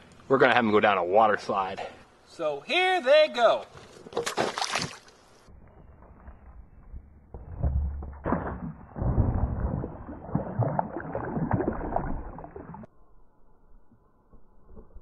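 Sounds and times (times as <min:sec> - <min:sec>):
slowed pool water splashing: 0:04.1 - 0:05.4, 0:07.6 - 0:12.9.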